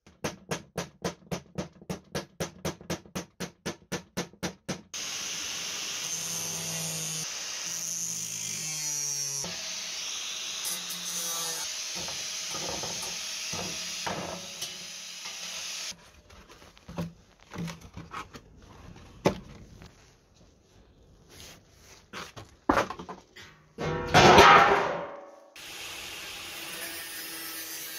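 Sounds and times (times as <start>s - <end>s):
angle grinder cutting sheet steel: 5.0s - 16.0s, 25.6s - 27.9s
cardboard rustling on wooden table: 16.0s - 20.6s.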